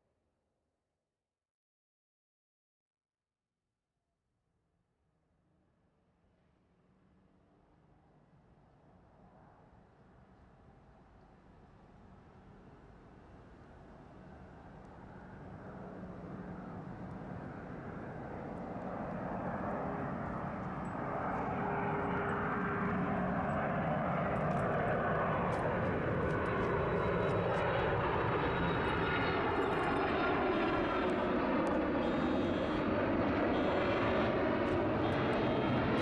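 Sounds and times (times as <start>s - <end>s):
jet airliner engines roaring: 13.3s - 36.0s.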